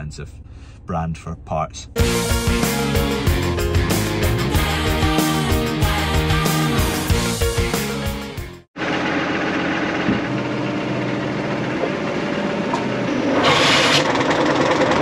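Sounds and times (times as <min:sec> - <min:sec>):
tractor engine running: 0:08.8 - 0:15.0
pump churning sewage: 0:11.5 - 0:15.0.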